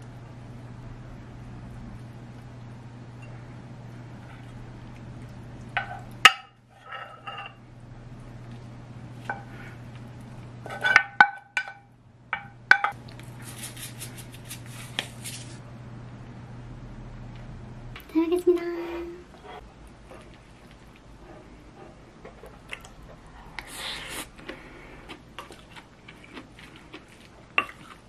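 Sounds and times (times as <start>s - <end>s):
steady low hum: 0.0s - 28.0s
spoon scraping pan: 10.6s - 11.2s.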